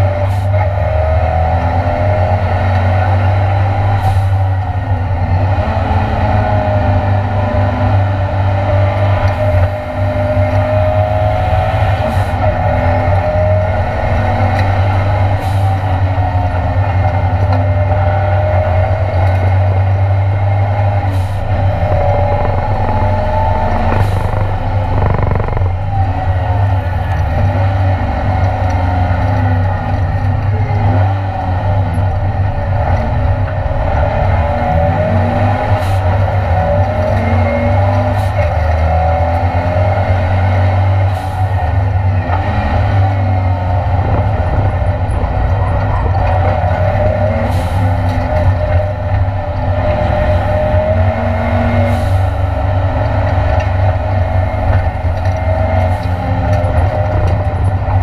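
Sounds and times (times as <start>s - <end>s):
race car engine revving: 4.8s - 58.0s
low rumble: 21.2s - 27.2s
sharp clicks: 21.7s - 26.0s.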